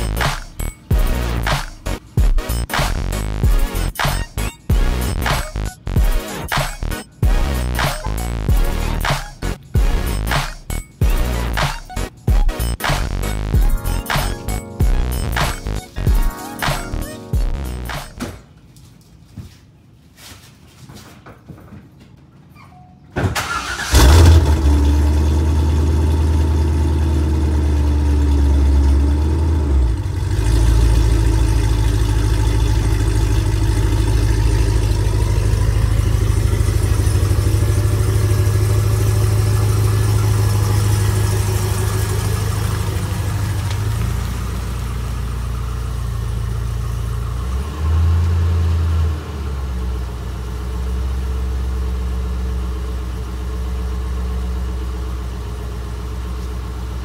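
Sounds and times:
car engine starting and idling: 23.2 - 57.0.

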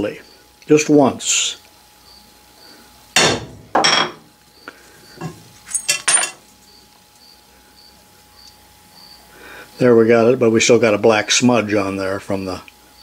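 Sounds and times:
hammer striking metal stamp: 3.2 - 4.2
light metallic clinks: 5.2 - 7.2.

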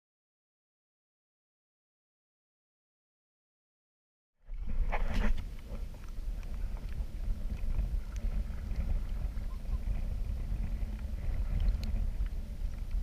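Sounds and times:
wind buffeting microphone: 4.5 - 13.0
faint clicks: 5.3 - 13.0.

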